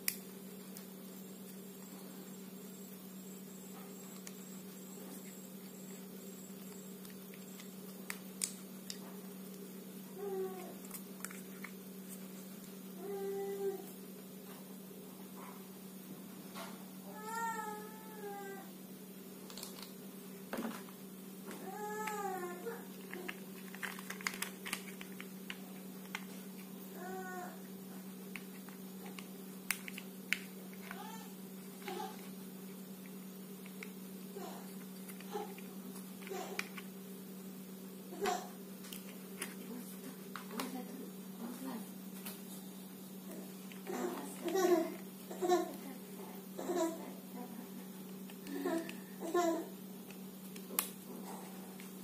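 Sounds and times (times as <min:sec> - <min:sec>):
electrical hum: 0:00.0 - 0:52.0
plastic parts clicking: 0:23.0 - 0:26.3, 0:36.2 - 0:36.9.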